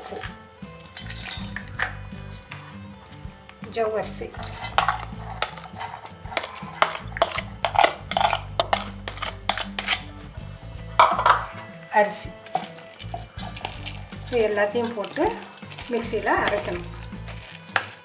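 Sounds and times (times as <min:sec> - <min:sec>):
plastic spoon scraping bowl: 0:04.2 - 0:10.2, 0:11.0 - 0:18.0.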